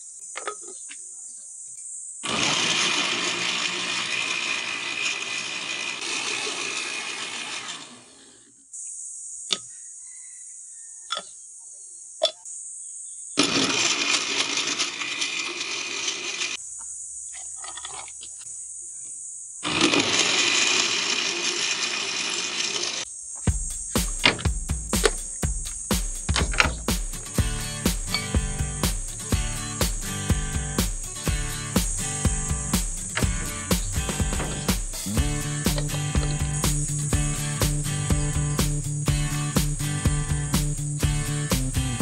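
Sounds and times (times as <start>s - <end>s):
blender crushing ice: 2.2s - 8.4s, 13.4s - 16.6s, 19.6s - 23.1s, 33.2s - 37.8s.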